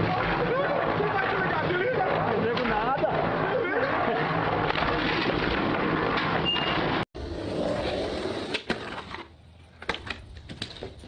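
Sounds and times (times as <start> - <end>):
skateboard rolling on concrete: 0.0 - 11.0
steady outdoor noise: 0.0 - 11.0
skateboard clacks: 7.8 - 11.0.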